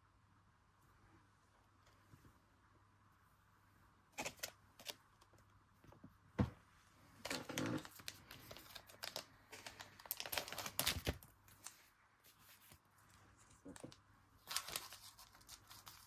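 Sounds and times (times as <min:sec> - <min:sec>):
plastic pouch crinkling: 0:07.2 - 0:11.8, 0:13.4 - 0:16.0.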